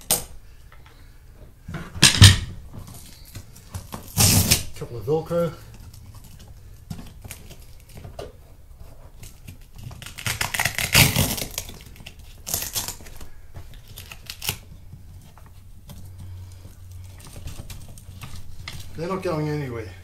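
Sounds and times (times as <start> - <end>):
velcro straps ripping: 3.0 - 4.9, 9.2 - 14.9.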